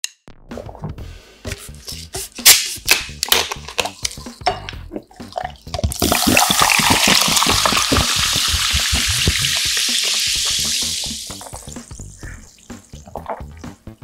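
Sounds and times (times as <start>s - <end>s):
fizzy drink pouring: 5.0s - 12.0s.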